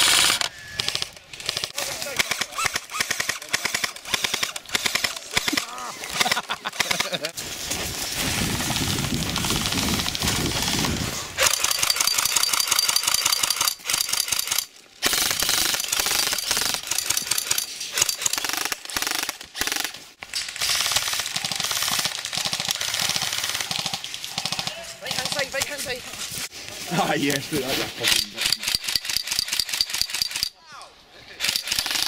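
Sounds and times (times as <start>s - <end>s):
airsoft guns firing full auto: 0.0s - 7.3s, 9.2s - 26.0s, 31.4s - 32.0s.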